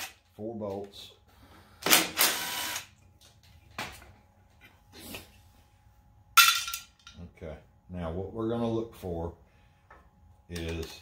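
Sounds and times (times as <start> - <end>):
cordless drill spinning bolts: 1.8 - 2.9.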